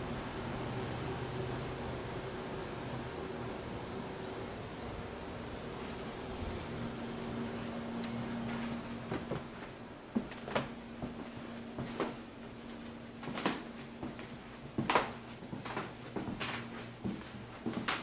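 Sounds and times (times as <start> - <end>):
faint steady hum: 0.0 - 18.0
footsteps on wooden floor: 8.1 - 18.0.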